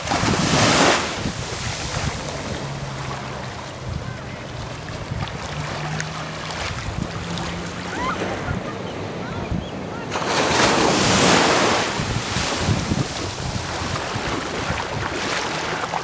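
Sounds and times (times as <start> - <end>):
waves washing over sand: 0.0 - 16.0
wind buffeting microphone: 0.0 - 16.0.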